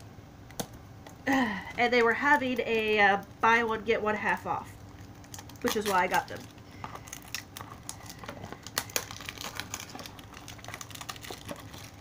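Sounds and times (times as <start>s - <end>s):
packaging crinkling: 4.8s - 12.0s.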